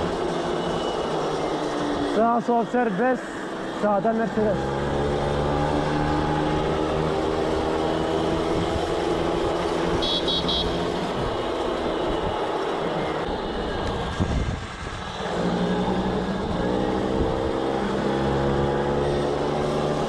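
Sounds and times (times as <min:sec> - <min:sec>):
moped two-stroke engine running: 0:04.1 - 0:11.4.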